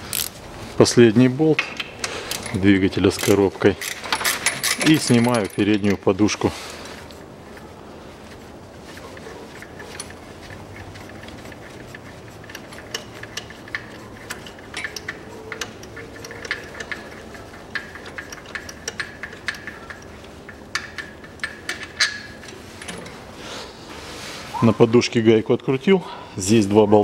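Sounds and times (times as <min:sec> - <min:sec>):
ratchet wrench clicking: 0:00.1 - 0:00.3, 0:02.3 - 0:06.0, 0:09.9 - 0:22.4.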